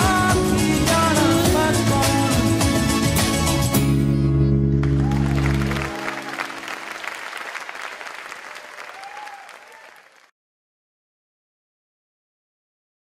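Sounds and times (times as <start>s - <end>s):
audience applause: 4.8s - 10.3s.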